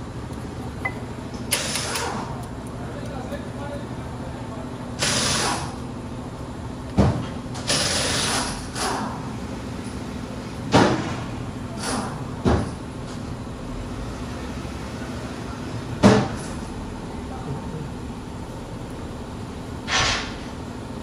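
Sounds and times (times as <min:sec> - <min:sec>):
short hiss: 0:19.9 - 0:20.4.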